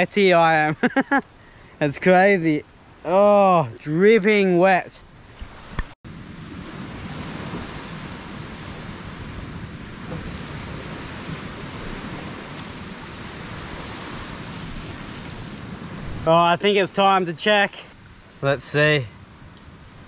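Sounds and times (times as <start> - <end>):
wind: 0.0 - 20.0
sea surf: 5.4 - 17.8.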